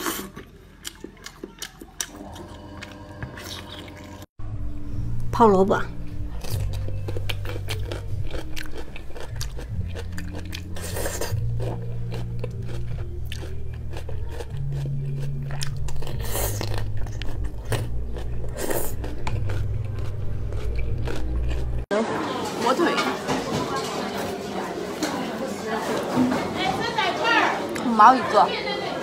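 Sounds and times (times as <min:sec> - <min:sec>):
crunching and chewing: 0:00.0 - 0:04.3, 0:06.3 - 0:21.9
low hum: 0:02.3 - 0:10.8.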